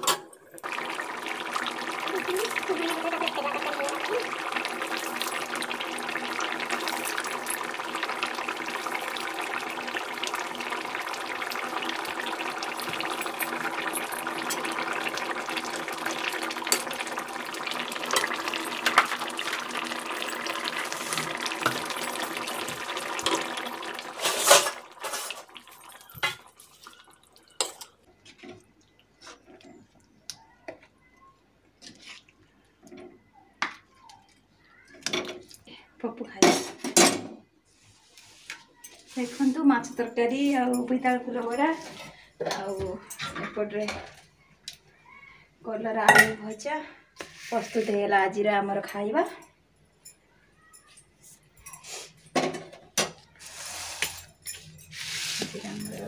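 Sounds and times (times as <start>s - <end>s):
curry boiling and sizzling: 0.0s - 30.4s, 38.0s - 44.2s, 52.4s - 56.0s.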